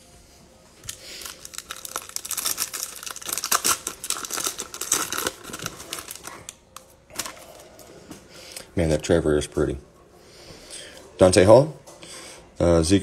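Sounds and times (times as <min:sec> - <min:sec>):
plastic wrapper crinkling and tearing: 0:00.8 - 0:07.8.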